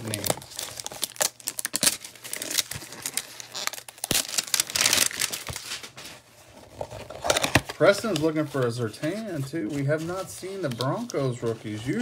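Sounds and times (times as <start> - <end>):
cardboard packaging tearing: 0.0 - 8.7.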